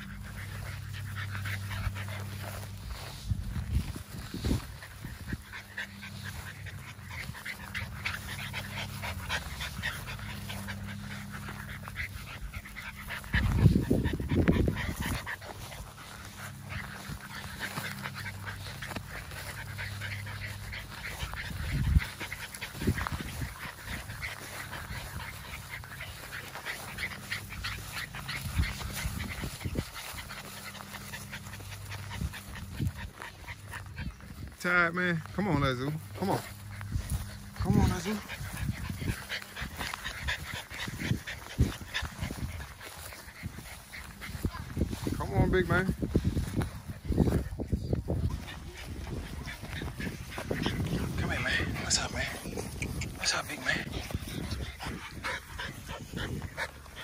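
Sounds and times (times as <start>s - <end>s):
puppy panting: 0.0s - 57.0s.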